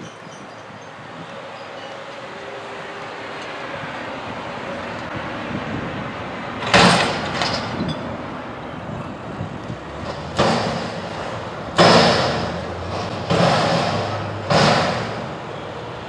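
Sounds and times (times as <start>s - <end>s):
truck engine running: 0.7s - 16.0s
loud metal bangs: 6.6s - 8.1s, 9.9s - 15.6s.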